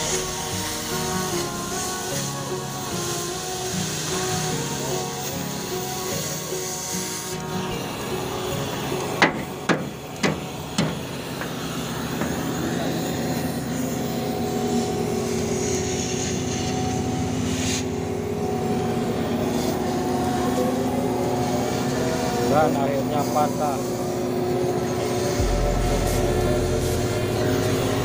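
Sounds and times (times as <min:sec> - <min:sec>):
steady low hum: 0:23.9 - 0:28.0
hammer blows on steel plate: 0:25.4 - 0:28.0.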